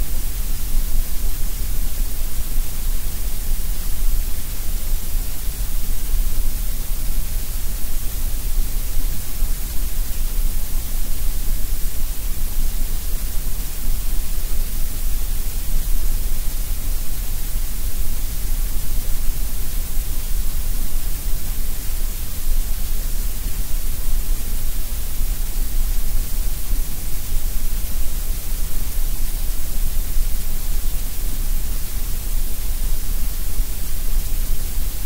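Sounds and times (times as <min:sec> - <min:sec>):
steady synthetic noise hiss: 0:00.0 - 0:35.0.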